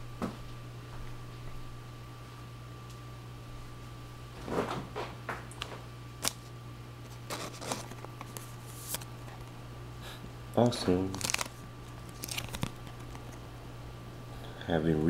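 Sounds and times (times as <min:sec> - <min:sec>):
plastic card sleeve rustles: 0:06.2 - 0:09.6, 0:10.6 - 0:13.5.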